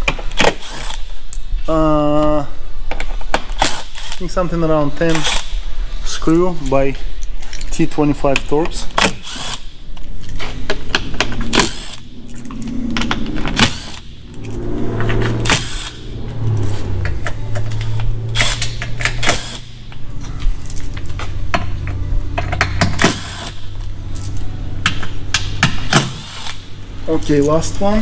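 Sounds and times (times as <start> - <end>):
driver motor running: 9.2 - 22.0.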